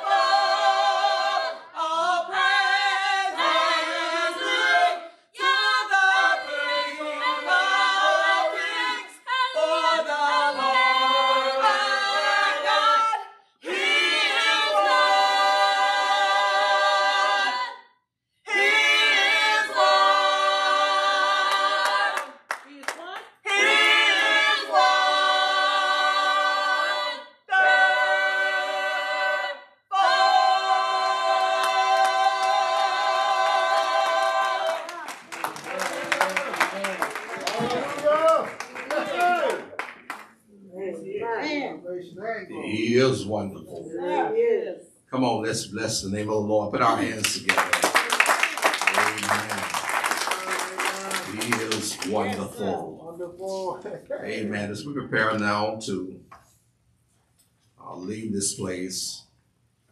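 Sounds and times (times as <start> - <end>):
group singing a cappella: 0.0 - 22.6, 23.3 - 35.2, 46.8 - 53.8.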